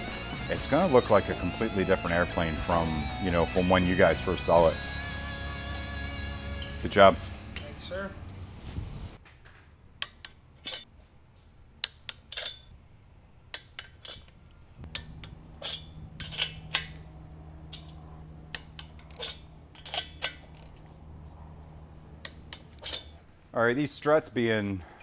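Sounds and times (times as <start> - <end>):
steady low hum: 9.8 - 25.0
socket wrench metallic clicks: 13.5 - 17.0, 17.7 - 20.8, 22.2 - 23.1.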